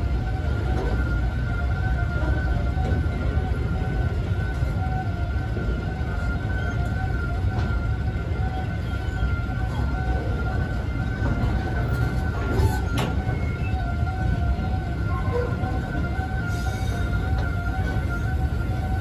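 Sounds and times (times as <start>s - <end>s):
train wheels rumbling on rails: 0.0s - 19.0s
high-pitched wheel squeal: 8.5s - 19.0s.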